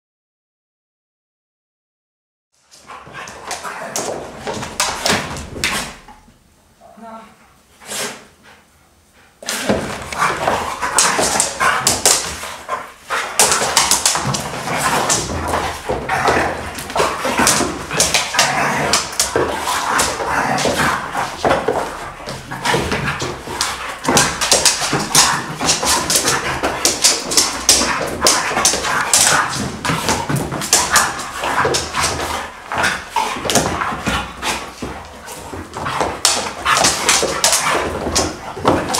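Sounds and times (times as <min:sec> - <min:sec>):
dogs whining growling and barking: 0:13.4 - 0:38.9.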